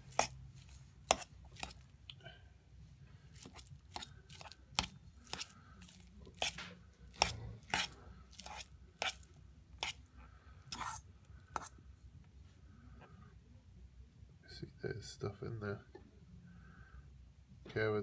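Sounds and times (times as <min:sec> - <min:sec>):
fork clinking and scraping metal bowl: 0:00.0 - 0:01.8, 0:03.4 - 0:10.0
soft crunch of food: 0:00.0 - 0:11.8.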